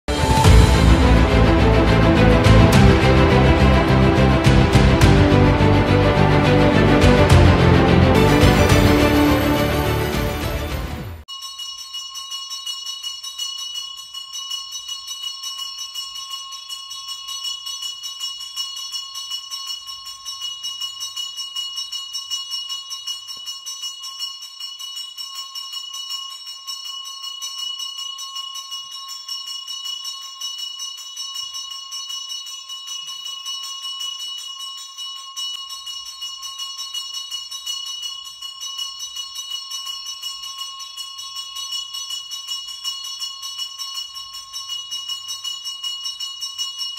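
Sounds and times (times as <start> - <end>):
brass bell ringing rapidly: 0.1 - 17.8.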